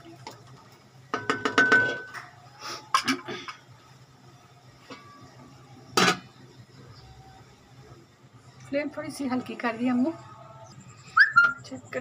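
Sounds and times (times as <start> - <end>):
wooden spoon knocking on metal pan: 1.2 - 2.1.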